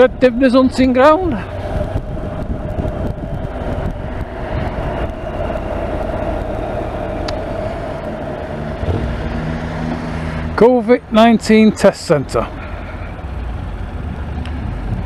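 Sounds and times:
road and wind noise: 0.0s - 15.0s
motorcycle engine running: 1.4s - 10.6s.

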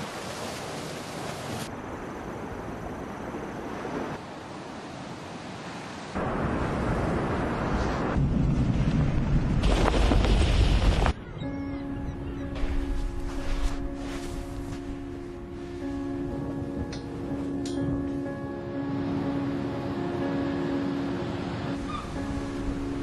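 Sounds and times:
sea surf on sandy beach: 0.0s - 11.1s
wind rumble on microphone: 6.2s - 11.3s.

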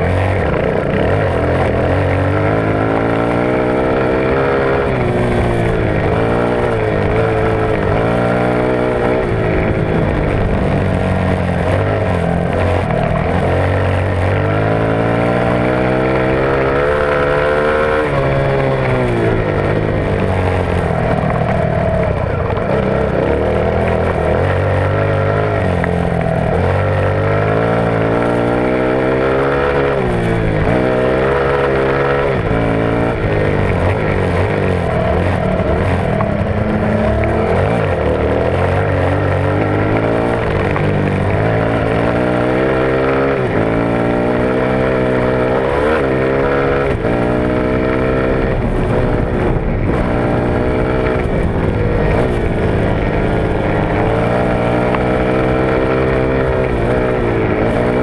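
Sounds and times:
dirt bike engine revving: 0.0s - 58.0s
rushing wind: 0.0s - 58.0s.

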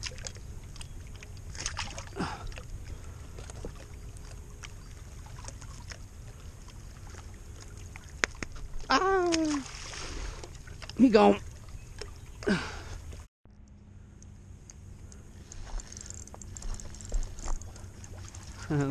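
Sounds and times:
water lapping: 0.0s - 13.3s, 15.0s - 18.9s
man calling out: 8.9s - 9.6s.

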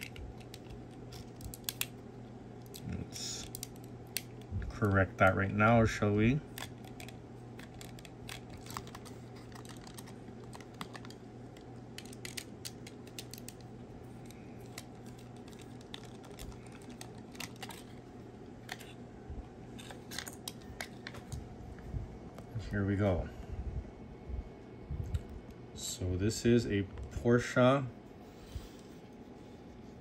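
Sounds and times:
steady low hum: 0.0s - 30.0s
card being handled: 6.5s - 19.0s.

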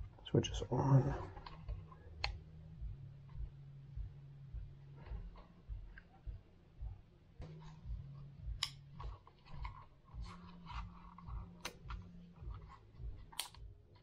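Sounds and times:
plastic device handling noise: 1.0s - 2.5s, 7.4s - 14.0s.

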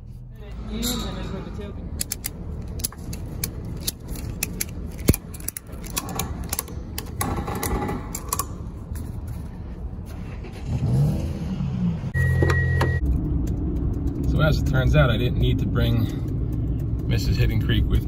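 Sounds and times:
ratchet strap clicks and rattles: 2.0s - 8.6s.

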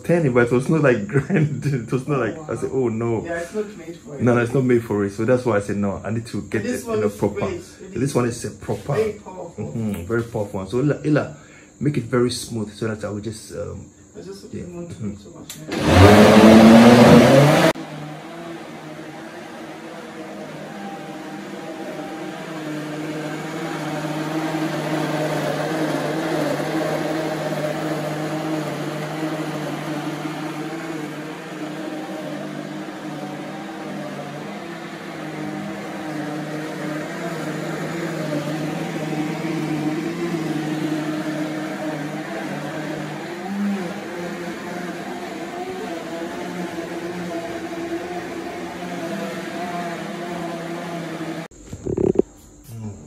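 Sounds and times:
blender motor humming: 15.5s - 52.2s.

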